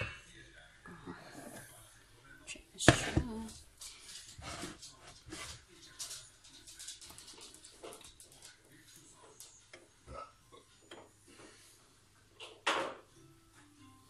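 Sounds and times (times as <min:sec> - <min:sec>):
small kitchen knocks and clicks: 0:02.8 - 0:10.0, 0:12.4 - 0:13.2
scrape or rustle: 0:04.2 - 0:05.6.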